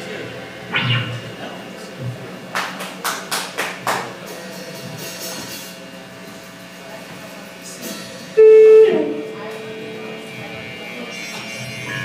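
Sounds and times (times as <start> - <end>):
amplifier hum: 0.0 - 2.6, 5.7 - 12.0
sharp drum hits: 0.7 - 1.3
electric guitar held note: 0.7 - 1.5.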